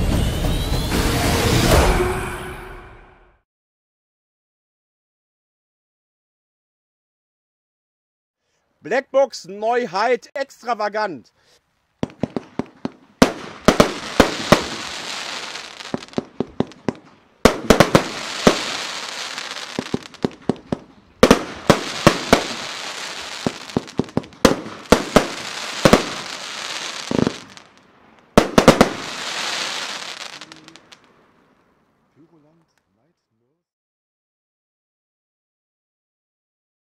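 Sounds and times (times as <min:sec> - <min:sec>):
firework bangs: 0:12.0 - 0:31.1
crackling hiss of firework stars: 0:12.0 - 0:31.2.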